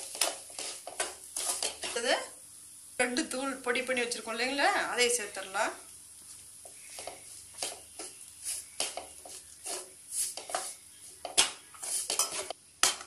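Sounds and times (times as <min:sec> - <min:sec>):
steel spatula scraping a pan: 0:00.0 - 0:02.2, 0:06.6 - 0:13.0.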